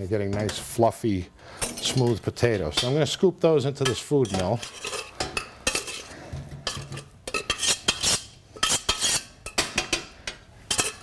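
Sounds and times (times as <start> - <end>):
metal spoon scraping in pot: 3.8 - 10.0, 10.6 - 11.0.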